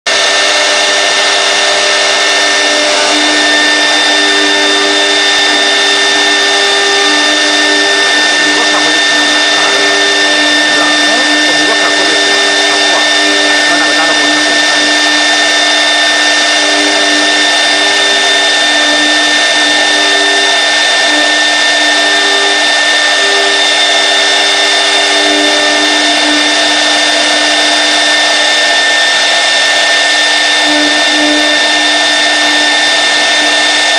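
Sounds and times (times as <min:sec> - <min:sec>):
router spindle whining: 0:00.0 - 0:33.9
low hum: 0:01.0 - 0:20.1.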